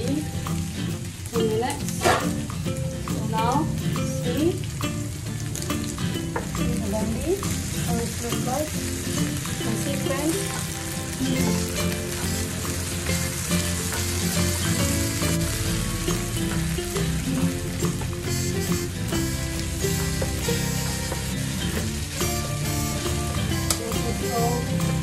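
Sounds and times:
okra sizzling in oil: 0.0s - 25.0s
spatula scraping pan: 2.0s - 2.4s.

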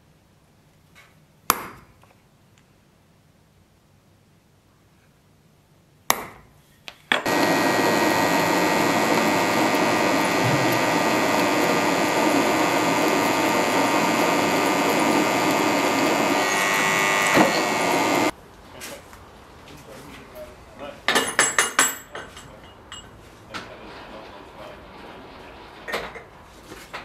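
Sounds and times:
drill press whining: 7.1s - 18.3s.

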